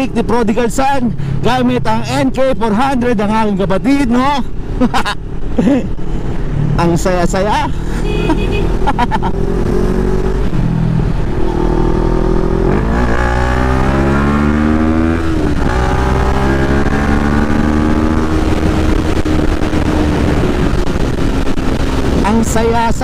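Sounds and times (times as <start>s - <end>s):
wind rush: 4.5s - 23.0s
motorcycle engine accelerating: 5.4s - 22.8s.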